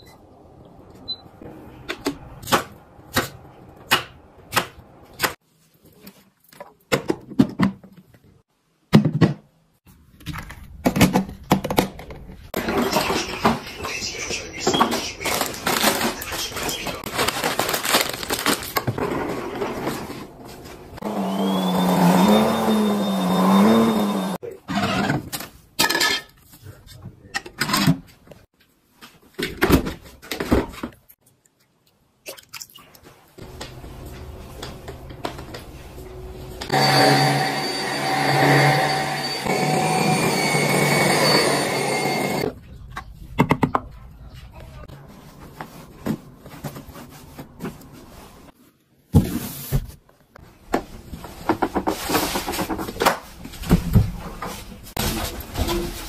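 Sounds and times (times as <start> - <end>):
household items clicking and rustling: 14.6 - 21.0
vacuum motor whining: 21.0 - 24.4, 33.4 - 42.4.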